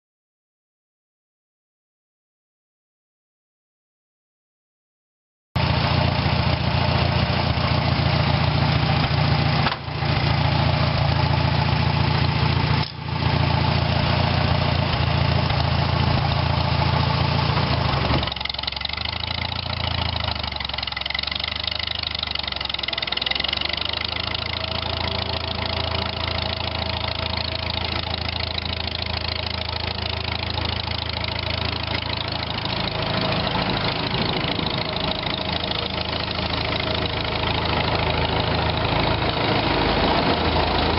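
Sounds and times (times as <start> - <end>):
old engine turning over: 5.6 - 40.9
tractor engine running: 5.6 - 40.9.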